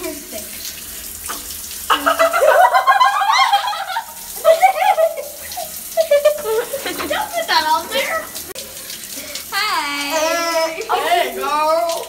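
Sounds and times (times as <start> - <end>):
shower water running: 0.0 - 12.0
girls calling out: 9.4 - 12.0.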